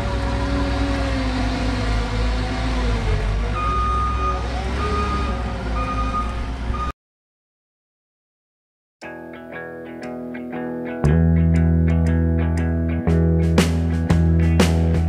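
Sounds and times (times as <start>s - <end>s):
diesel engine under load: 0.0s - 7.0s
backup alarm beeps: 3.6s - 6.9s.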